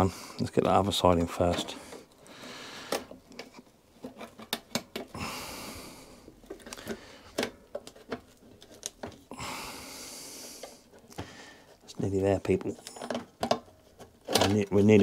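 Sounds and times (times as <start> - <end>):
small clicks and knocks: 12.4 - 15.0.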